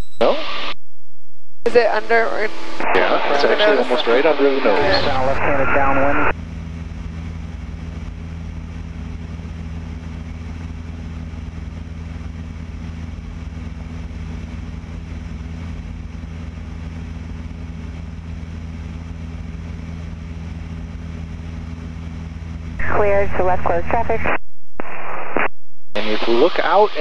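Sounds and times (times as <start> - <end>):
propeller plane engine droning: 1.7 - 24.4, 26.0 - 27.0.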